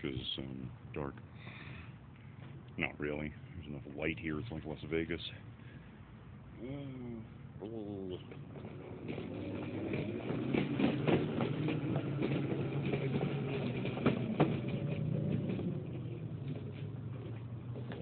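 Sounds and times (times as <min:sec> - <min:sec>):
electric skateboard wheels humming: 0:08.3 - 0:18.0
wheels clacking over seams: 0:08.3 - 0:18.0.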